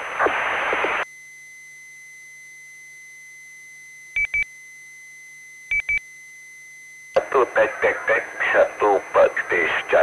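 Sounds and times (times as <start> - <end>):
radio channel tone and hiss: 0.0 - 1.0, 7.2 - 10.0.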